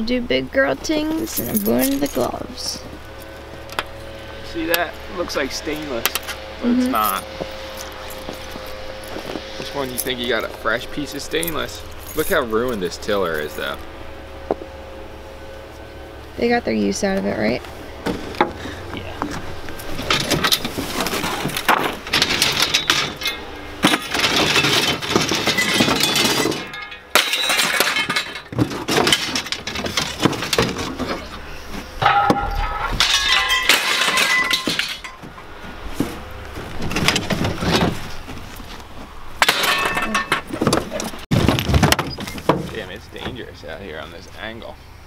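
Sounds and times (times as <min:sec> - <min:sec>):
scrap metal clanking and clattering: 0:18.0 - 0:38.8, 0:39.4 - 0:43.3.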